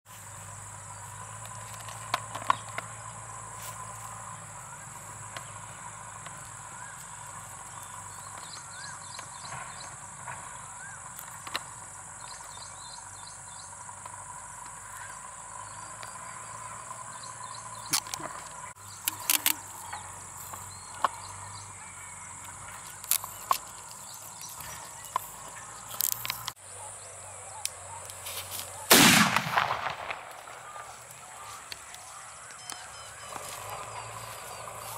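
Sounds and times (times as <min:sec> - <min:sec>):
crickets chirring: 0:00.1 - 0:34.9
handling clicks: 0:17.8 - 0:21.3, 0:22.4 - 0:26.6
firecracker exploding: 0:28.9 - 0:31.0.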